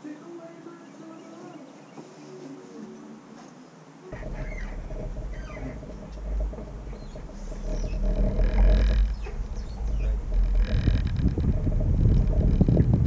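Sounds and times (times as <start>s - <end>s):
low rumble: 4.1s - 13.0s
steady hum: 4.1s - 13.0s.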